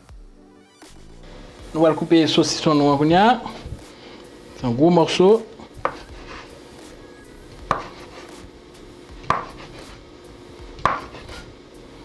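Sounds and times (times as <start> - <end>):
knife chopping on wooden board: 5.8 - 6.5, 7.6 - 8.4, 9.2 - 10.0, 10.8 - 11.5.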